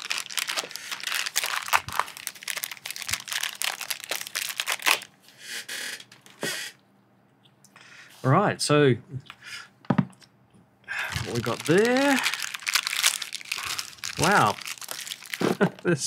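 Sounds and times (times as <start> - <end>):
plastic bag crinkling: 0.0 - 5.1, 11.0 - 15.8.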